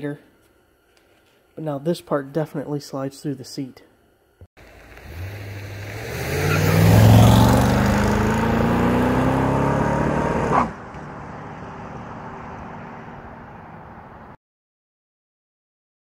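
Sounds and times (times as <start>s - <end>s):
car engine accelerating past: 4.6s - 14.1s.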